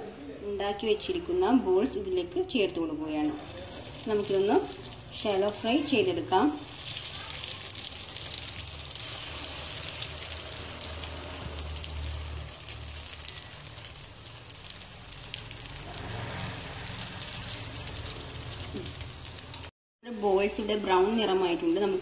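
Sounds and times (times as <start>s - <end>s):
frying sizzle with fine crackles: 3.2s - 19.7s.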